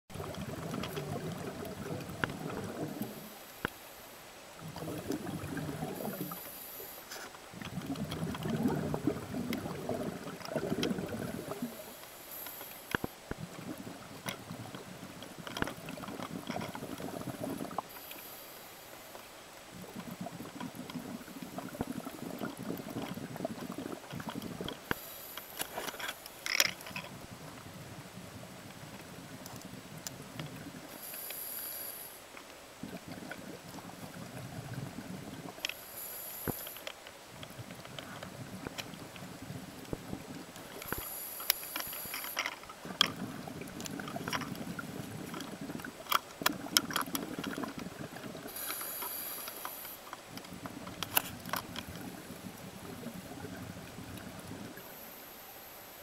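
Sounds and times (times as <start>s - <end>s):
exhaled bubbles rumbling underwater: 0.1s - 3.4s, 4.5s - 6.5s, 7.4s - 12.0s, 13.2s - 18.0s, 19.6s - 24.9s, 27.0s - 31.0s, 32.7s - 35.6s, 37.3s - 40.9s, 42.7s - 48.6s, 50.2s - 55.0s
regulator inhale hiss: 5.9s - 7.4s, 11.4s - 13.2s, 17.8s - 19.2s, 24.8s - 26.4s, 30.9s - 32.3s, 35.7s - 37.0s, 40.7s - 42.6s, 48.5s - 50.2s, 54.8s - 56.0s.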